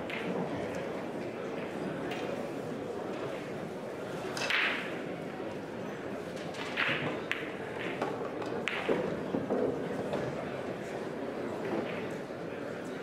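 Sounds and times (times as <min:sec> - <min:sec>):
pool balls clicking: 0:06.4 - 0:10.2.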